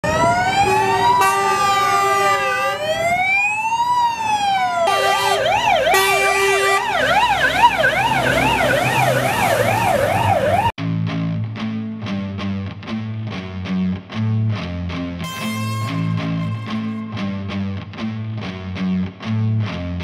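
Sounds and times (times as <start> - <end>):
truck engine rumble: 0.0 - 10.7
siren wailing: 0.0 - 10.8, 15.3 - 17.4
siren yelping: 0.0 - 10.8, 15.3 - 17.2.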